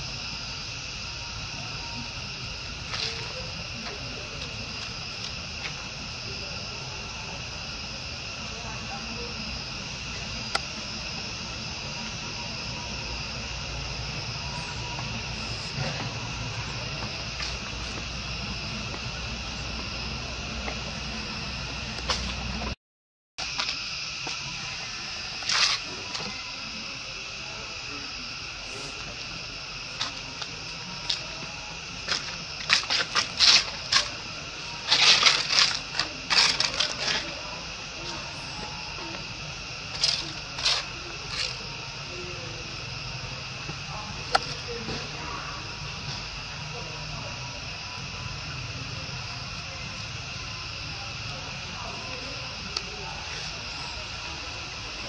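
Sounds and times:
high-pitched insect chorus: 0.0s - 22.8s, 23.4s - 55.0s
dry leaf crackling: 29.4s - 42.6s.

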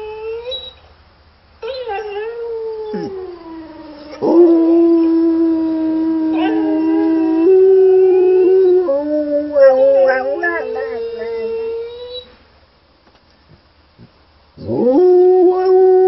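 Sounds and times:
dog howling: 1.6s - 12.4s, 14.6s - 16.0s.

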